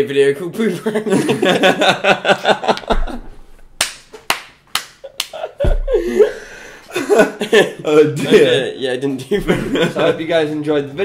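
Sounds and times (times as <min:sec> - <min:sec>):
men laughing hard: 0:00.9 - 0:03.3, 0:05.0 - 0:08.5, 0:09.4 - 0:10.4
sharp slaps: 0:02.7 - 0:06.0.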